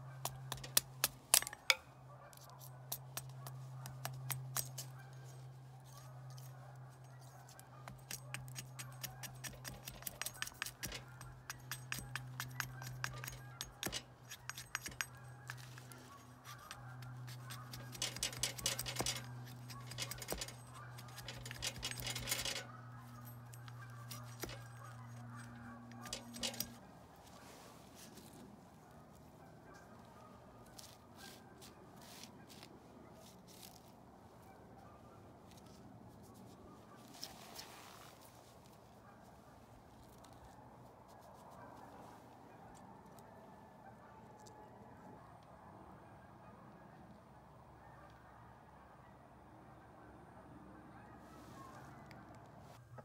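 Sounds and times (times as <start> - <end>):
blade scraping wood: 7.8 - 26.8.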